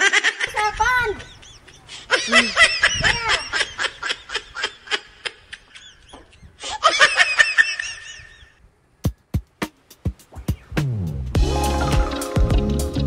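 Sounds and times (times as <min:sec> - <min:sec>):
high-pitched hearty laughter: 0:00.0 - 0:08.6.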